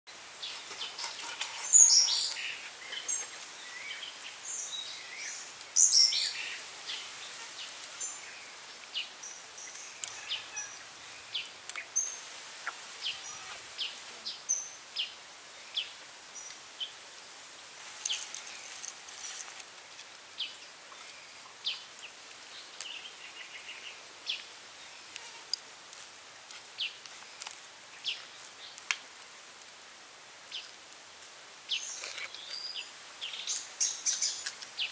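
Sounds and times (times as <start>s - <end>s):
faint hiss: 0.1s - 34.9s
birds chirping: 0.4s - 17.0s.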